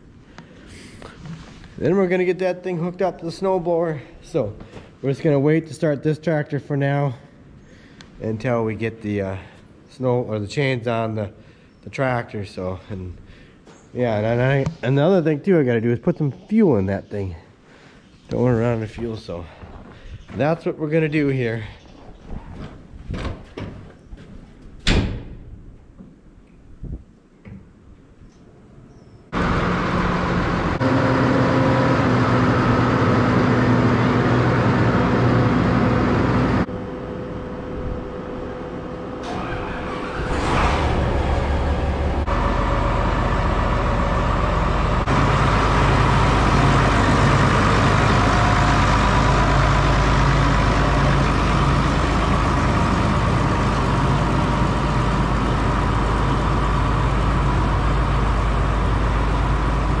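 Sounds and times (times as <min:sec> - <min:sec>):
diesel tractor engine running: 0:29.3 - 1:00.0.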